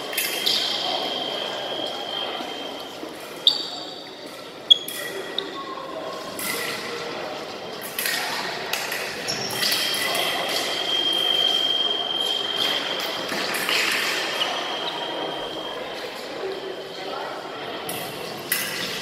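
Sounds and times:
shoe squeaks: 0.4 - 5.6, 9.3 - 13.2, 14.2 - 15.9.

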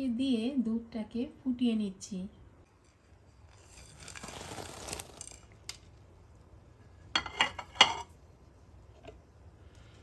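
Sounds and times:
sugar pouring hiss: 2.7 - 6.4
kitchenware clinking against pan: 7.1 - 8.1.

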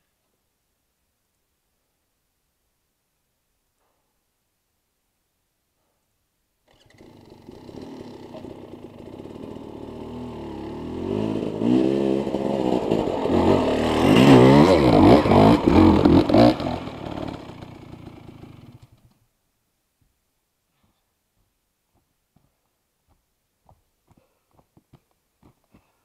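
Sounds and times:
dirt bike engine revving: 6.7 - 18.8.

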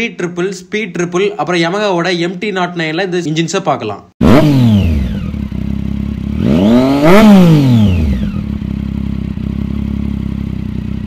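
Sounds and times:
motorcycle engine revving and idling: 4.2 - 11.0.

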